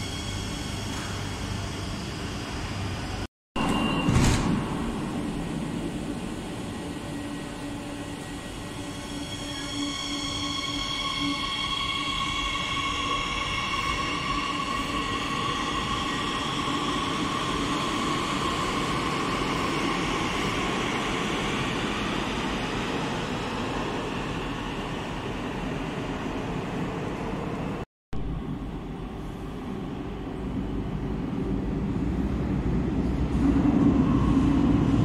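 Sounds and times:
train electric whine: 0.0s - 22.5s.

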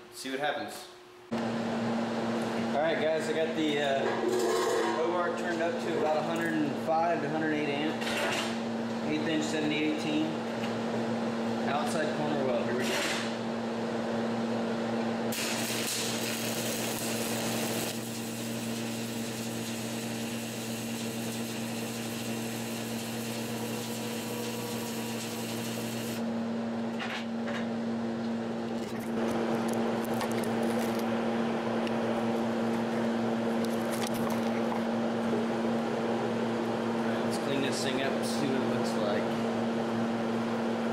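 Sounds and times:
welder humming: 14.9s - 26.5s
welding arc crackling and hissing: 15.3s - 26.2s.

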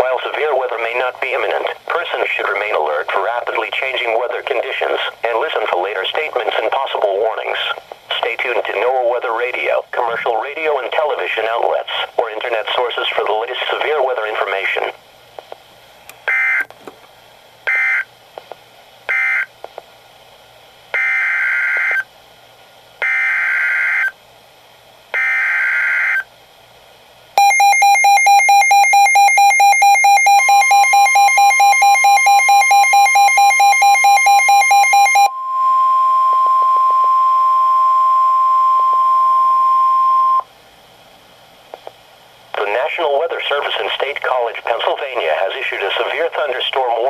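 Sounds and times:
fast pulsing alarm beeps: 27.4s - 40.4s.

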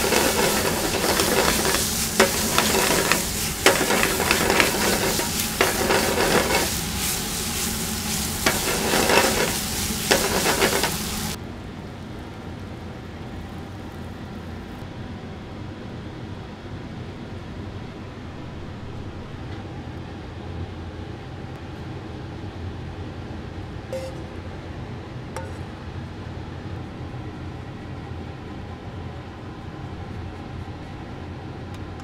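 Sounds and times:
food sizzling in a pan: 0.0s - 11.4s
utensil scraping a pan: 0.0s - 11.4s
steady hum: 0.0s - 11.8s, 23.4s - 32.0s.

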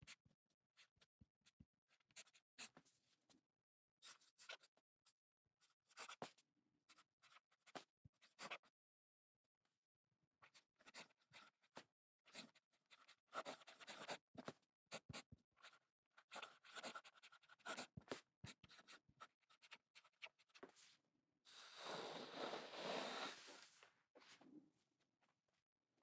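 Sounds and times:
fountain pen scratching on paper: 2.0s - 2.9s, 4.0s - 4.7s, 5.8s - 8.7s, 10.4s - 20.9s, 21.7s - 23.5s.

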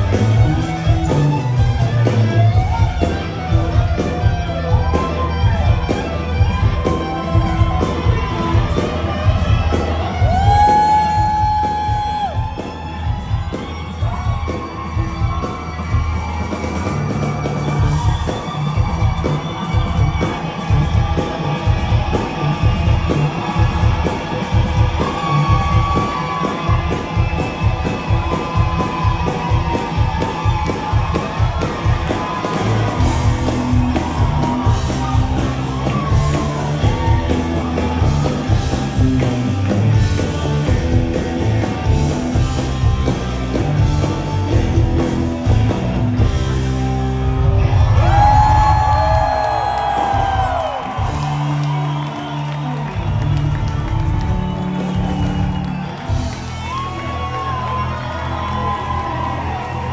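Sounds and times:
bass and drums: 0.0s - 59.9s
electric guitar lead: 0.0s - 59.9s.

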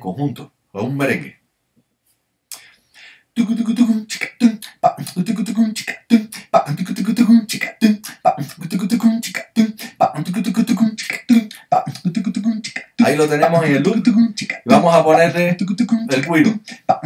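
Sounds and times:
vocal hissing strokes: 2.5s - 17.0s
vocal percussion low syllables: 3.4s - 17.0s.

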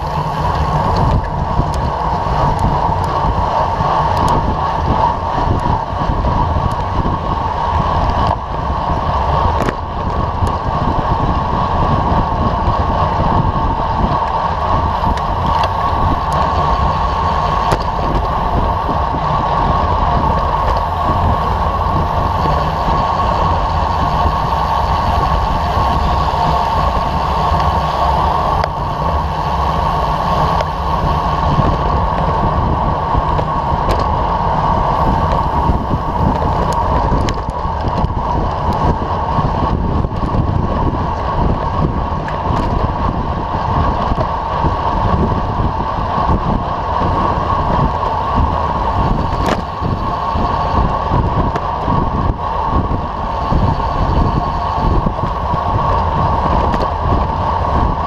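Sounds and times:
bike tyres rolling on asphalt: 0.0s - 58.0s
wind rushing on microphone: 0.0s - 58.0s.

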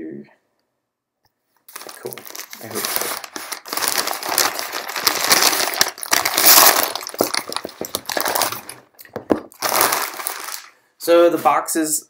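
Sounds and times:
plastic shrink wrap crinkling: 1.7s - 10.8s.

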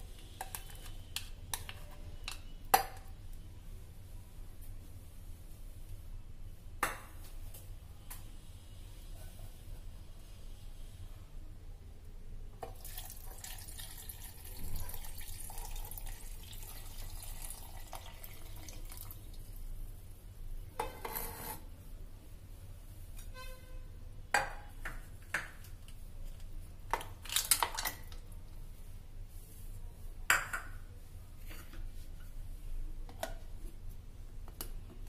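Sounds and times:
milk pouring and splashing: 12.7s - 19.6s.

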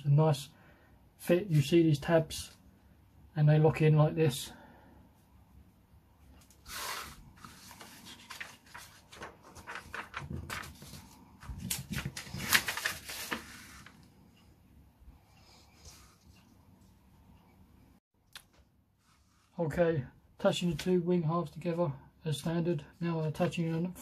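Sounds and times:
paper pages rustling: 6.7s - 14.1s.

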